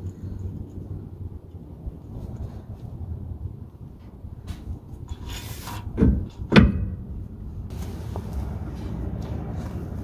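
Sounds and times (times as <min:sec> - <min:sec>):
metal clunks: 0:05.9 - 0:07.1.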